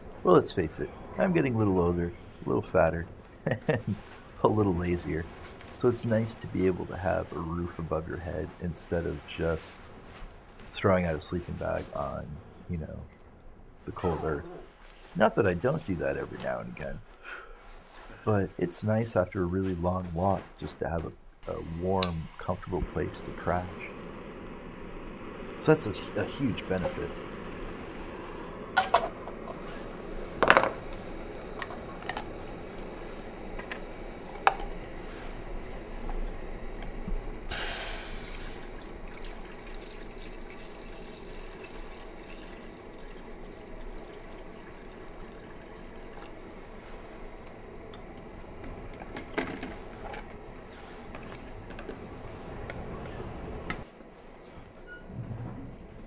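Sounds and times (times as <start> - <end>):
gas stove hiss: 0.0 - 13.1, 13.8 - 56.0
water pouring into pot: 21.5 - 32.9, 37.5 - 47.5.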